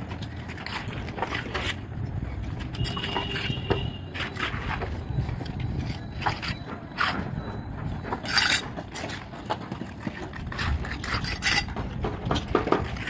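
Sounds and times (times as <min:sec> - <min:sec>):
trowels scraping mortar: 0:00.1 - 0:07.4, 0:08.2 - 0:13.0
trowel knocking on bricks: 0:05.8 - 0:13.0.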